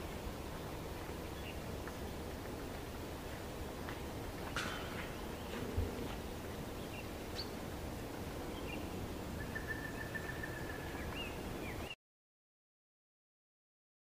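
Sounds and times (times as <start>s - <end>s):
bird chirps: 8.5s - 12.0s.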